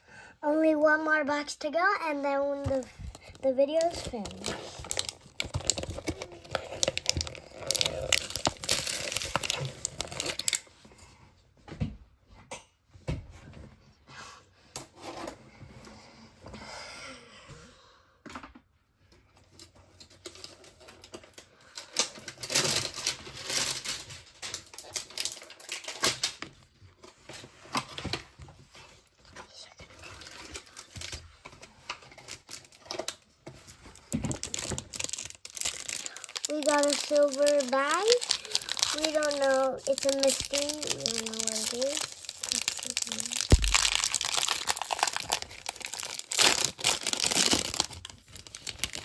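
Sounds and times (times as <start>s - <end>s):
plastic wrapping crinkling: 2.6s - 10.7s, 20.2s - 26.8s, 29.9s - 49.0s.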